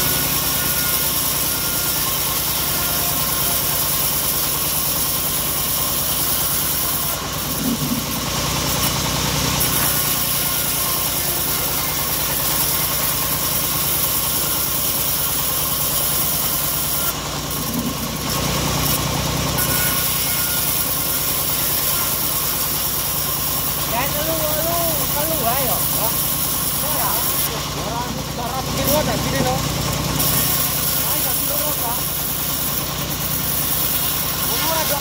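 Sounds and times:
engine drone: 0.0s - 35.0s
saw blade hissing: 0.0s - 35.0s.

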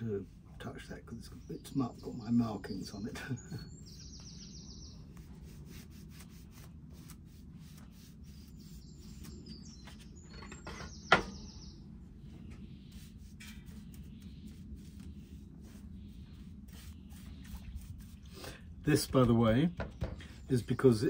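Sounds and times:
birds chirping: 0.0s - 6.5s, 7.6s - 21.0s
paintbrush scratching on wood: 5.1s - 10.3s, 12.7s - 19.6s.

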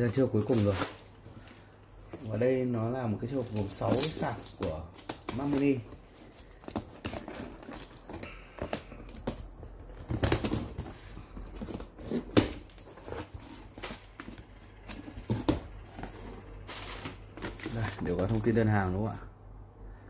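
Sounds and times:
cardboard and plastic rustling: 0.0s - 19.2s.

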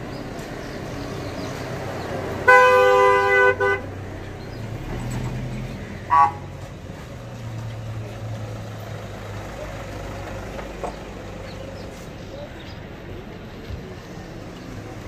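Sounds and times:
vehicle engine humming: 0.0s - 15.0s
vehicle horn honking: 2.4s - 3.9s, 6.1s - 6.5s.

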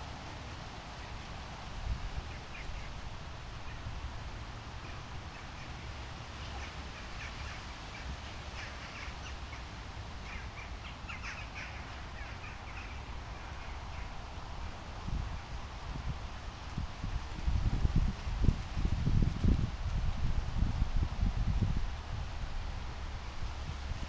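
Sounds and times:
birds calling: 4.8s - 14.3s.

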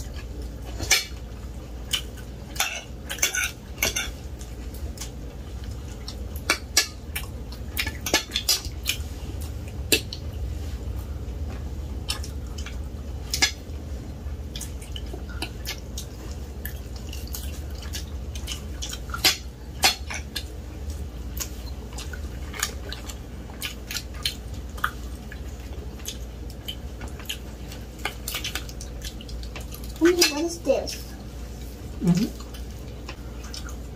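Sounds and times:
steady low hum: 0.0s - 33.9s.

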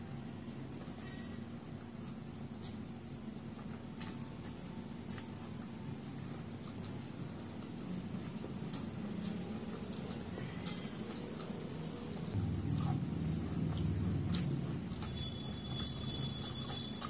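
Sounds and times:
chewing food: 6.6s - 17.0s
low hum: 11.9s - 17.0s
high-pitched whine: 12.1s - 17.0s.

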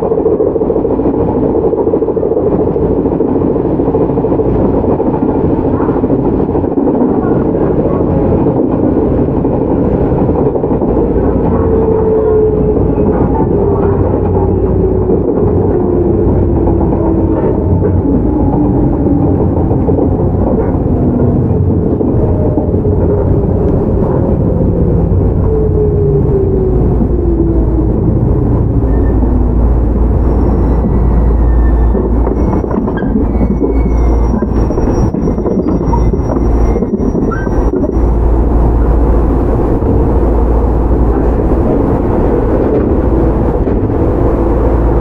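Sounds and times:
faint high squeals: 28.7s - 38.4s.

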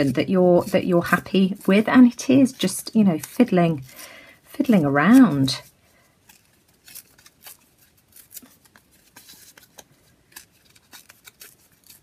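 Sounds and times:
paper rustling and tapping: 0.0s - 3.9s.

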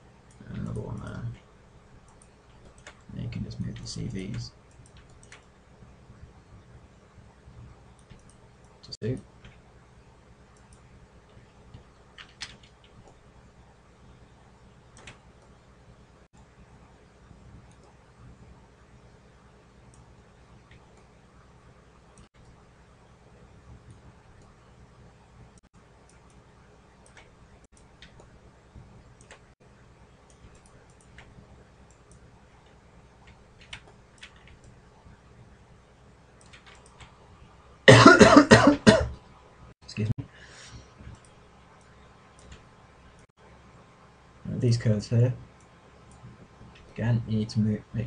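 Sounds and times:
low electrical hum and hiss: 0.0s - 48.0s
computer mouse clicks: 2.0s - 5.5s, 7.9s - 9.6s, 14.9s - 15.5s, 17.6s - 18.0s, 27.0s - 28.3s, 29.2s - 29.5s, 30.2s - 34.8s, 36.4s - 37.1s, 41.1s - 43.3s.

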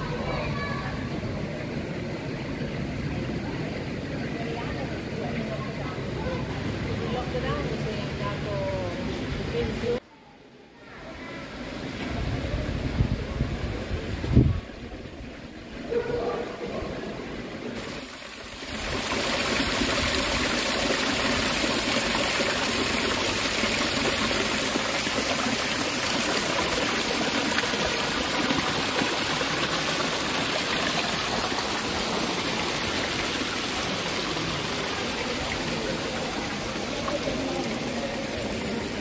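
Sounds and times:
running water: 11.6s - 39.0s.

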